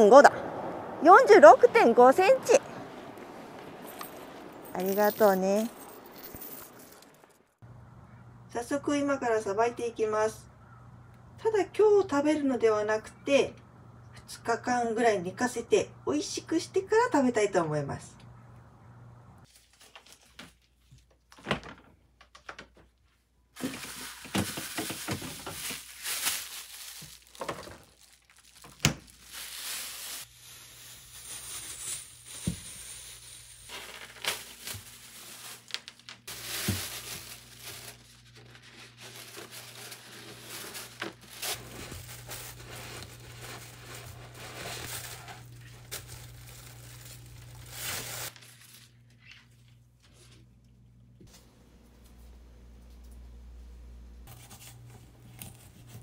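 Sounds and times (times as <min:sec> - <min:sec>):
plastic bags crinkling: 0:23.6 - 0:49.2
low steady hum: 0:41.4 - 0:56.0.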